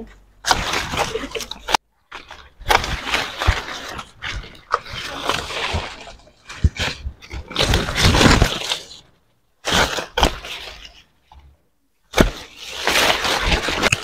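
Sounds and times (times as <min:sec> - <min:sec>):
leaves rustling: 0:00.4 - 0:11.5, 0:12.1 - 0:14.0
tree branches cracking: 0:00.4 - 0:11.5, 0:12.1 - 0:14.0.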